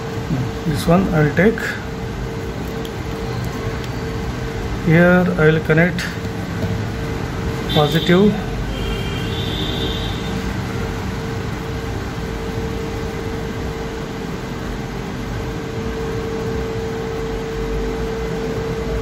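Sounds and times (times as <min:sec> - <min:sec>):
background hum and hiss: 0:00.0 - 0:19.0
constant mid-pitched tone: 0:00.0 - 0:19.0.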